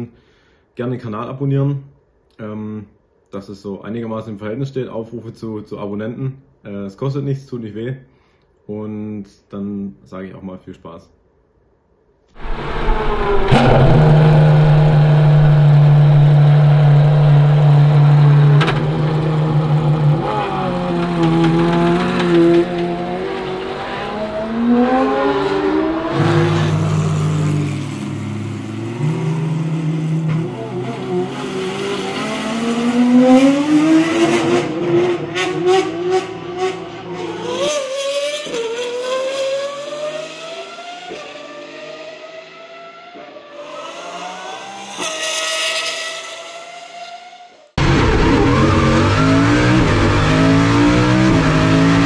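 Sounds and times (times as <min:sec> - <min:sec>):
exhaust cracks: 0:12.4 - 0:23.6
car engine revving: 0:12.4 - 0:52.0.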